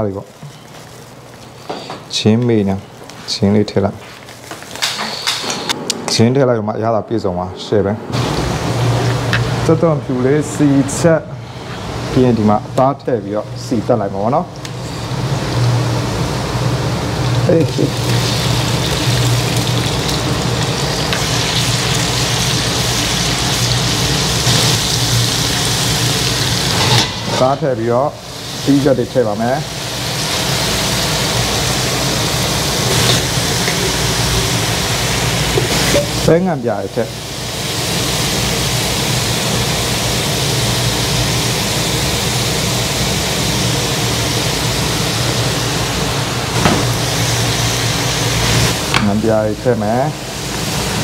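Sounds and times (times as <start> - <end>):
meat sizzling in a wok: 14.8 - 51.0.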